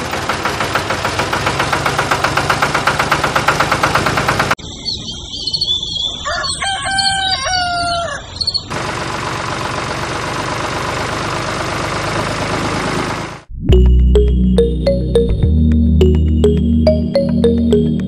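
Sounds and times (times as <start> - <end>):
engine chugging: 0.0 - 4.6, 8.7 - 13.5
steady engine-like noise: 0.0 - 4.6, 8.7 - 13.5
small birds chirping: 4.6 - 8.7
rooster crowing: 6.2 - 8.4.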